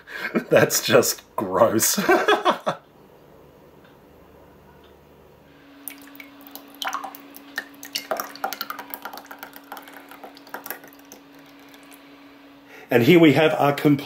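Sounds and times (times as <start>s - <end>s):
faint steady hum: 0.0s - 14.0s
slime splashing and plopping: 5.9s - 12.0s.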